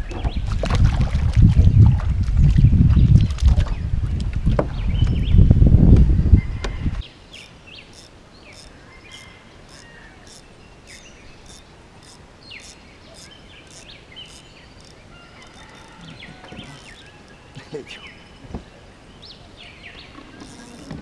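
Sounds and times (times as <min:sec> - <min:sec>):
birds chirping: 0:02.5 - 0:21.0
faint sharp ticking: 0:07.4 - 0:17.8.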